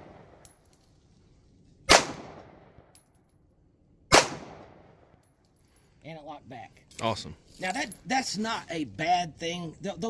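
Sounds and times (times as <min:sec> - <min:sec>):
pistol shots with echo: 0:01.9 - 0:02.9, 0:04.1 - 0:05.1.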